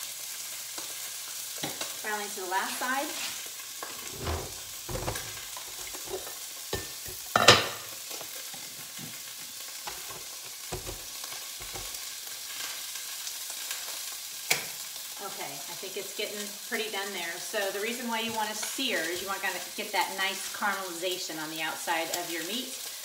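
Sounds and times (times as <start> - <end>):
steak sizzling in a pan: 0.0 - 23.0
scrape in a pan: 3.1 - 6.9.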